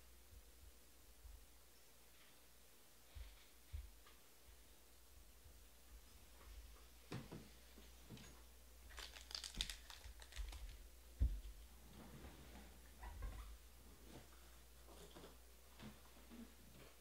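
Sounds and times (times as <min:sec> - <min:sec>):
wrapper crinkling: 0:08.9 - 0:10.9.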